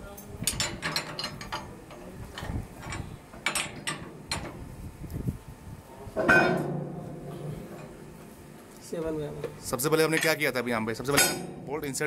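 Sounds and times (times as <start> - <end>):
ringing metal clank: 6.2 - 8.0, 11.1 - 12.0.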